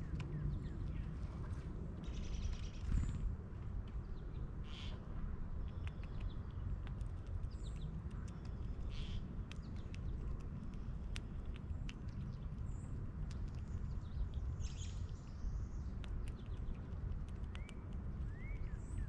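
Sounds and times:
steady low rumble: 0:00.0 - 0:19.0
birds chirping: 0:11.7 - 0:19.0
squirrel clicking in metal feeder: 0:15.9 - 0:18.7.

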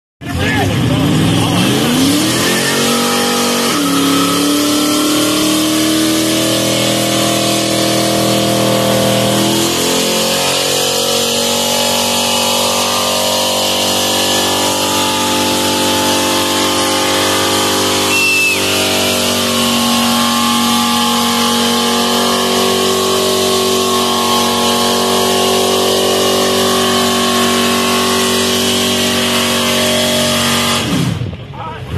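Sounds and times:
car engine revving high: 0:00.3 - 0:31.4.

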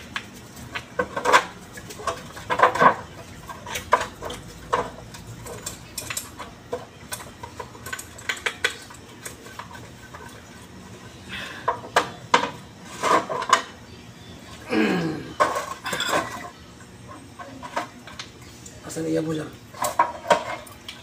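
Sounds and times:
metal parts clinking and knocking: 0:01.0 - 0:10.2, 0:15.4 - 0:16.6.

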